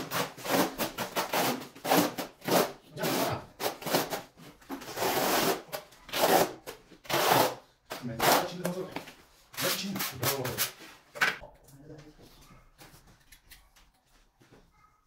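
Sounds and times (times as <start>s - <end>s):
trowel scraping adhesive on concrete: 0.0s - 8.7s.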